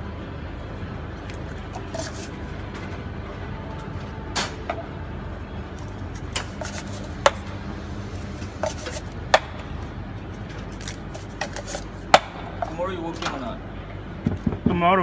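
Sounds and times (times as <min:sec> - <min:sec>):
low hum of espresso machine: 0:00.0 - 0:12.0
cups and utensils clinking: 0:08.5 - 0:09.1.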